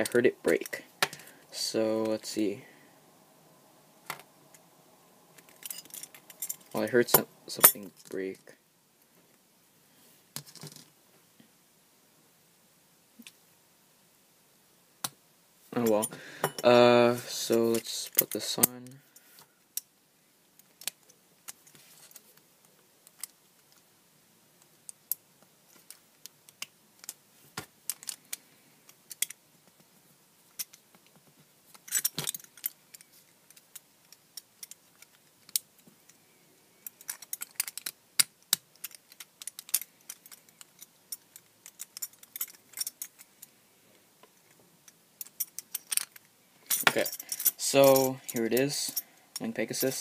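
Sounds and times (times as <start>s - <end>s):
plastic parts clattering: 31.7s - 35.6s, 36.8s - 43.4s.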